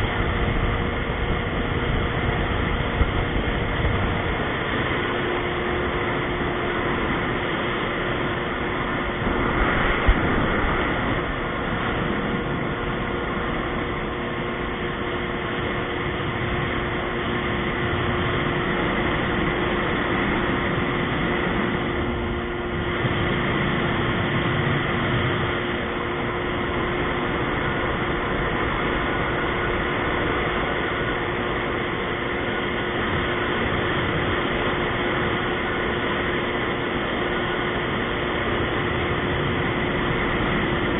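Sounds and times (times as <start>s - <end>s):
jet ski engine droning: 0.0s - 40.9s
water rushing: 0.0s - 40.9s.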